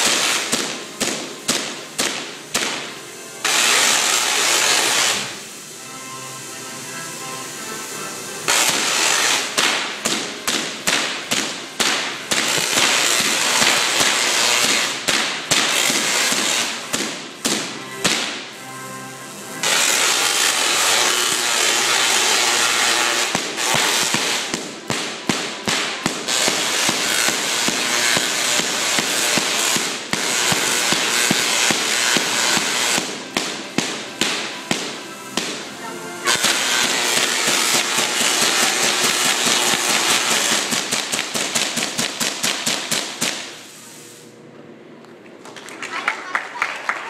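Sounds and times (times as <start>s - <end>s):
electric sparks crackling: 0.0s - 44.3s.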